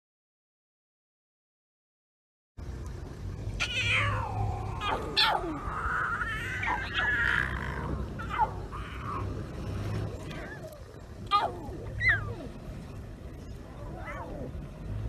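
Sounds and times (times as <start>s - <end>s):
low steady rumble: 2.6s - 15.0s
lion cubs mewing: 3.6s - 12.6s, 13.6s - 14.6s.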